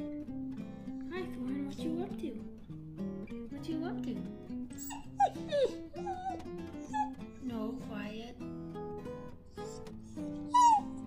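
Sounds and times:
acoustic guitar music: 0.0 - 11.0
puppy whining: 4.7 - 7.5, 9.5 - 11.0.

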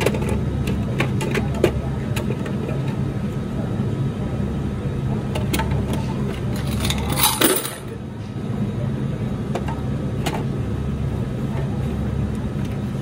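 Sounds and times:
low machinery hum: 0.0 - 13.0
metal clatter: 5.9 - 7.9.

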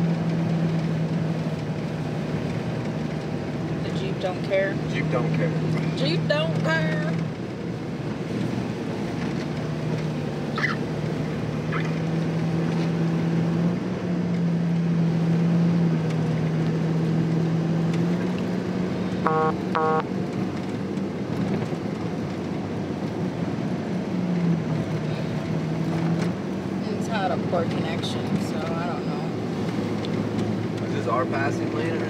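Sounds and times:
engine and road drone in car: 0.0 - 32.0
short electronic beeps: 19.2 - 20.1.

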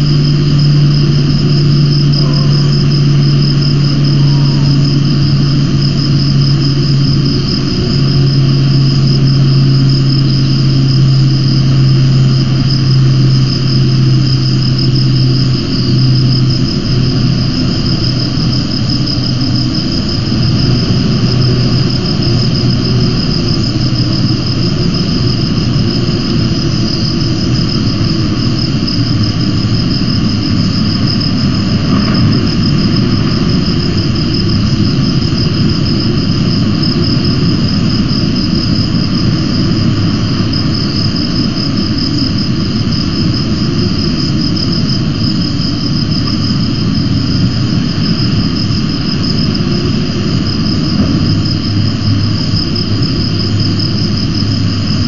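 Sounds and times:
high insect-like trill: 0.0 - 55.0
wind rumble on microphone: 0.0 - 55.0.

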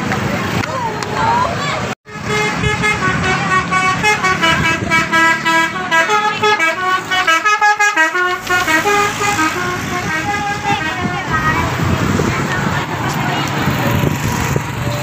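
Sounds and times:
multi-tone bus horn melody: 2.1 - 11.6.

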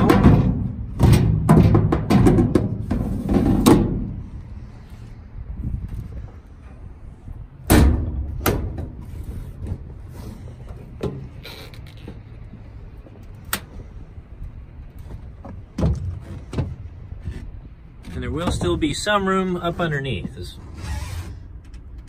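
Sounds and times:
metal toolbox lid banging: 0.0 - 4.2.

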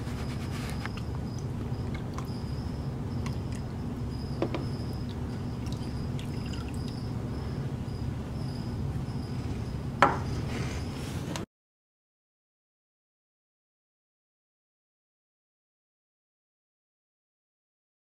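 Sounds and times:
low room hum: 0.0 - 11.5.

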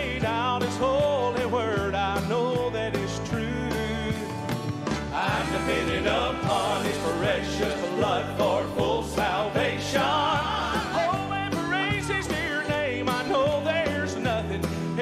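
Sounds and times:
band playing: 0.0 - 15.0
electric bass notes: 0.0 - 15.0
vocal group singing gospel: 5.1 - 13.3.

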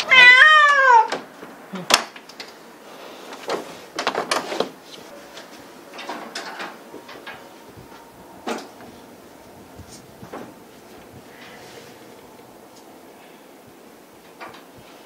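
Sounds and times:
objects clicking and rustling: 3.3 - 7.5.

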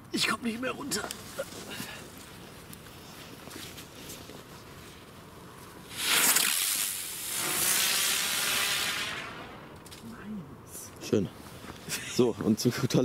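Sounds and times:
spinning firework hissing sparks: 5.9 - 10.0.

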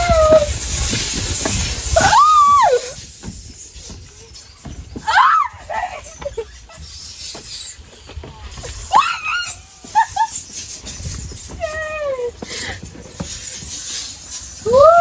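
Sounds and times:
person whooping: 0.0 - 0.6, 2.0 - 3.0, 8.9 - 10.1, 14.6 - 15.0
riders rushing down tube slide: 0.0 - 15.0.

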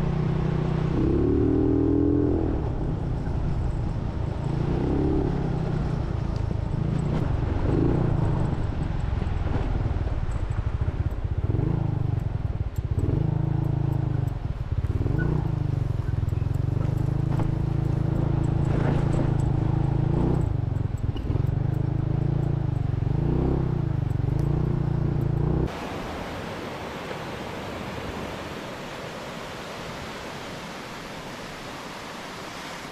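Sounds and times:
engine revving: 0.0 - 2.8, 16.4 - 25.8.

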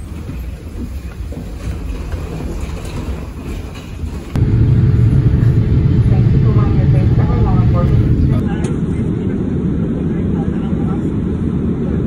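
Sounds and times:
low rattling rumble: 1.4 - 12.0
airliner cabin drone: 4.3 - 12.0.

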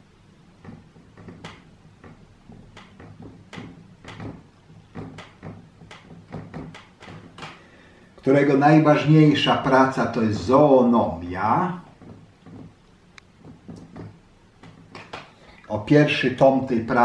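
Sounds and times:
marker writing on whiteboard: 0.5 - 7.6, 11.8 - 15.3.

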